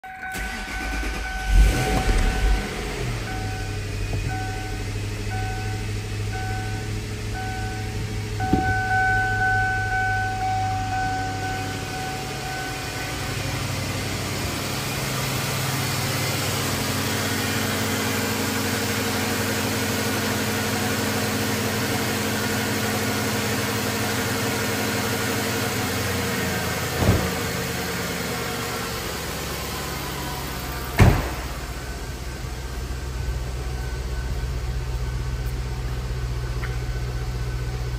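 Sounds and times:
dashboard warning chime: 0:00.0 - 0:19.7, 0:31.6 - 0:37.9
car engine idling: 0:00.0 - 0:37.9.

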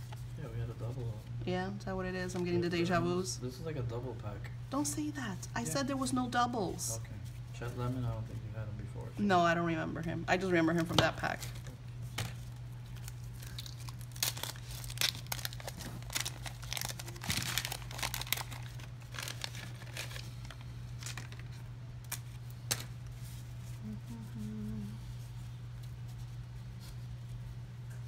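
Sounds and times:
steady low hum: 0:00.0 - 0:28.0
paper wrapper crinkling and tearing: 0:11.3 - 0:23.4.

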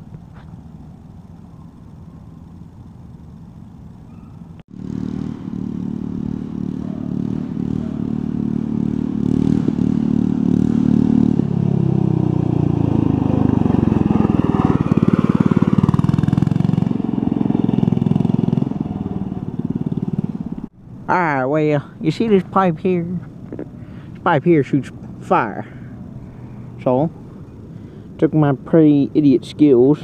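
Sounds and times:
mini bike engine passing: 0:00.0 - 0:20.7.

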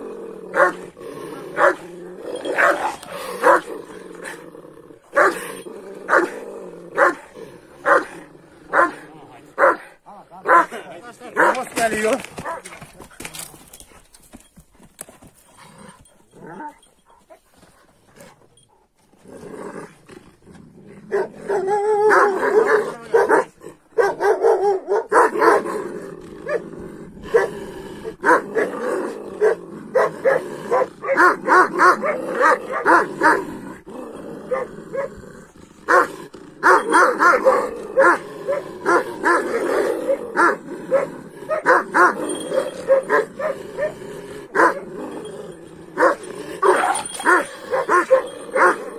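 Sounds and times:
dogs barking: 0:00.5 - 0:00.8, 0:01.6 - 0:01.8, 0:02.4 - 0:04.4, 0:05.1 - 0:05.5, 0:07.0 - 0:07.2, 0:07.8 - 0:09.0, 0:09.6 - 0:11.7, 0:12.4 - 0:12.8, 0:21.1 - 0:25.7, 0:28.2 - 0:28.7, 0:29.4 - 0:33.4, 0:34.5 - 0:35.1, 0:35.9 - 0:44.9, 0:46.0 - 0:48.9.

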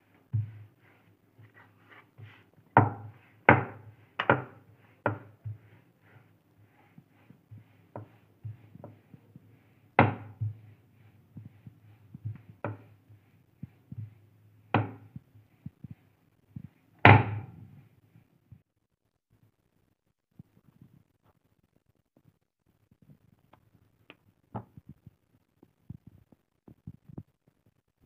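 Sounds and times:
rolling pin on wooden board: 0:00.2 - 0:17.7.

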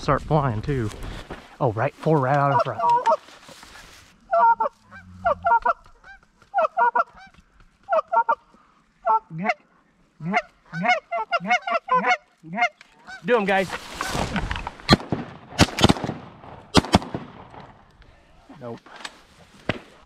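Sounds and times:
goose honking: 0:02.4 - 0:03.2, 0:04.3 - 0:08.4, 0:10.2 - 0:14.2.

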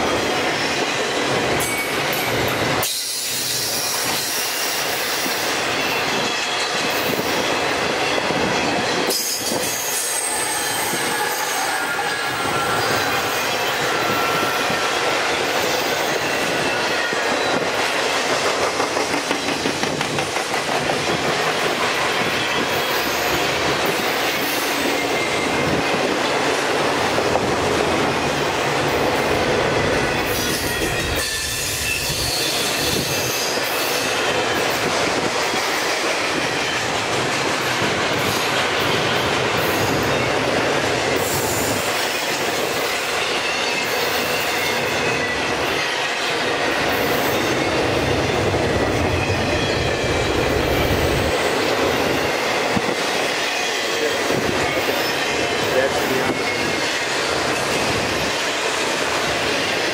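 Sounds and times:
steel wheels rumbling on rail: 0:00.0 - 0:59.9
high wheel squeal: 0:02.8 - 0:06.6, 0:08.1 - 0:17.7, 0:30.1 - 0:34.5.

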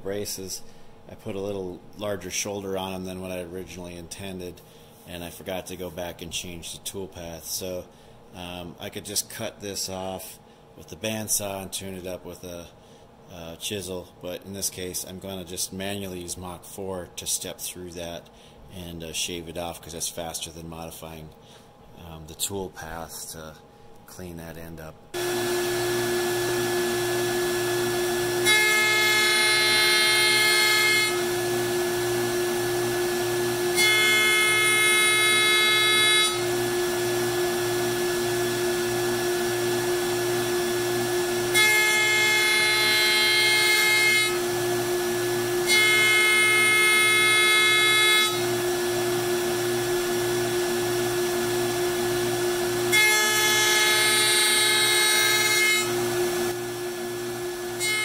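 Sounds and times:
router bit cutting wood: 0:25.2 - 0:58.0
router spindle whining: 0:25.2 - 0:58.0.

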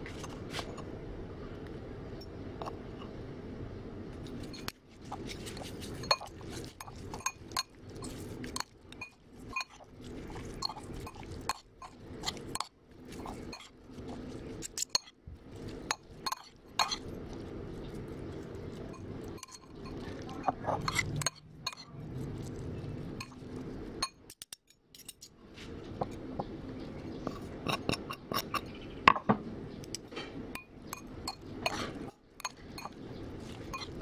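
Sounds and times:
steady low hum: 0:00.0 - 0:24.4, 0:25.3 - 0:34.0
cutlery clinking against a bowl: 0:04.4 - 0:13.7, 0:14.6 - 0:17.0, 0:18.8 - 0:21.9, 0:27.3 - 0:28.7, 0:30.0 - 0:34.0.

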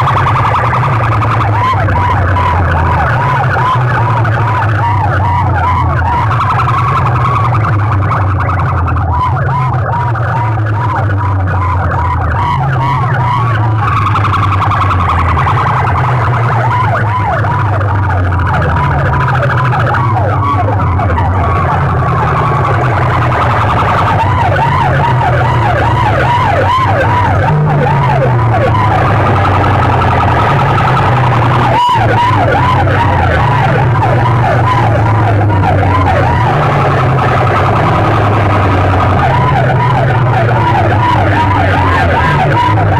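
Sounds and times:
heavy bass line: 0:00.0 - 0:42.9
warbling siren effect: 0:00.0 - 0:42.9.

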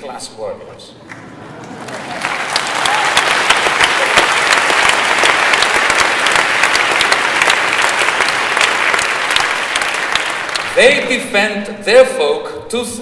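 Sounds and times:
audience applauding: 0:01.0 - 0:11.1.

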